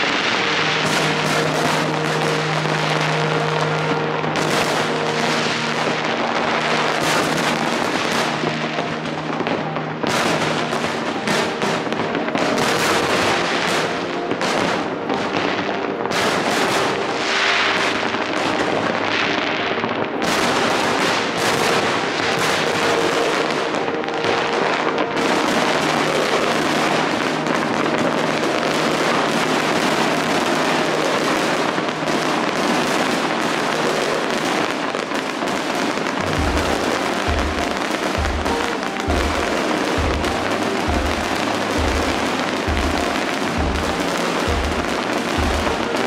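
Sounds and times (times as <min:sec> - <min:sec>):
fireworks bangs and crackling: 0:00.0 - 0:46.0
steady low tones: 0:36.2 - 0:46.0.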